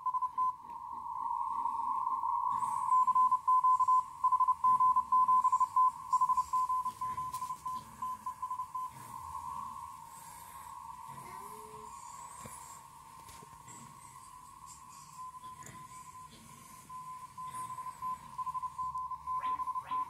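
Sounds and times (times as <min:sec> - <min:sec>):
steady tonal hiss: 0:00.0 - 0:20.0
morse code beeping: 0:02.6 - 0:10.0, 0:15.0 - 0:20.0.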